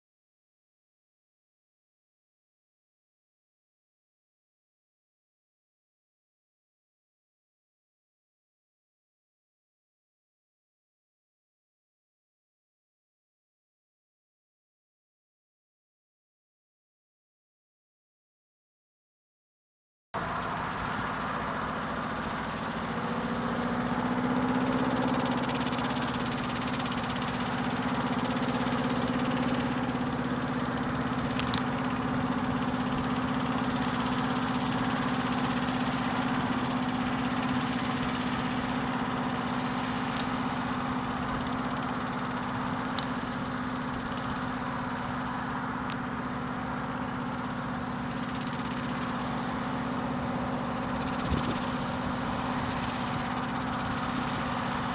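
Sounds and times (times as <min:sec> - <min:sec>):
helicopter engine and rotor running: 0:20.2 - 0:54.9.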